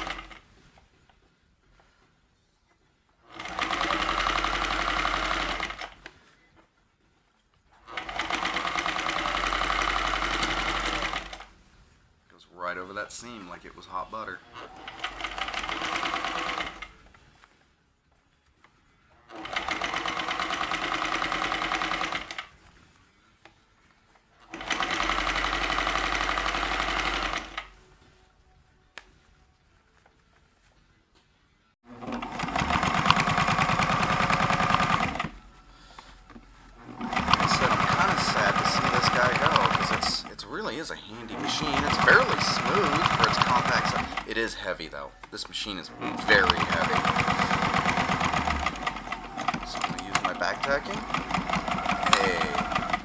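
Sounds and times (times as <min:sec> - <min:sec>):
sewing machine stitching: 0:03.3 - 0:06.0, 0:07.8 - 0:11.5, 0:14.6 - 0:16.9, 0:19.3 - 0:22.5, 0:24.4 - 0:27.7, 0:31.9 - 0:35.3, 0:36.8 - 0:44.5, 0:45.8 - 0:53.0.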